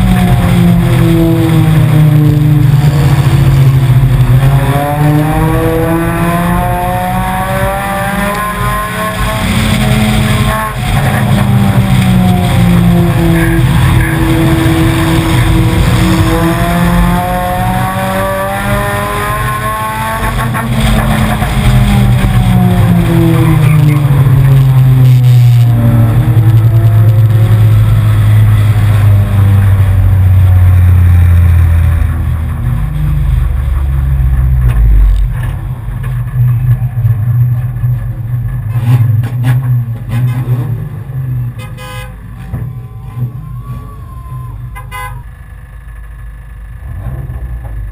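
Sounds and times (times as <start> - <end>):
car engine slowing to idle: 21.2 - 39.2, 42.2 - 47.9.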